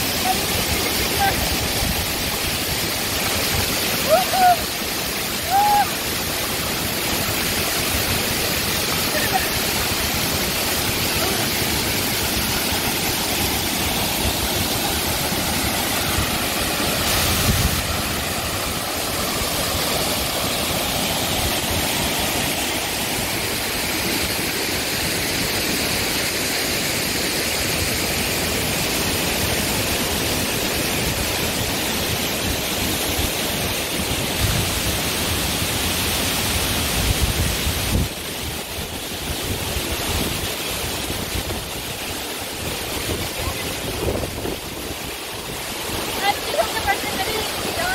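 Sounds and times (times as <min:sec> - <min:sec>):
waterfall rushing: 0:00.0 - 0:47.9.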